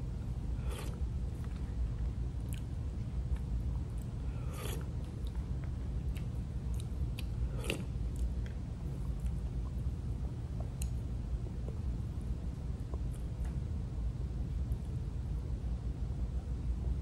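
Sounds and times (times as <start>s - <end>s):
steady low rumble: 0.0s - 17.0s
mouth eating sounds: 6.0s - 8.4s.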